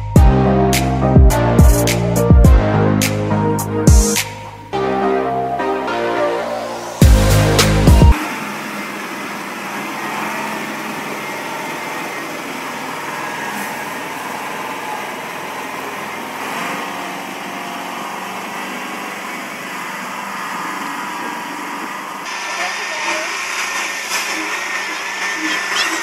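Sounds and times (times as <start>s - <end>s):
diesel truck engine under load: 6.5s - 26.0s
water rushing around wheels: 7.1s - 26.0s.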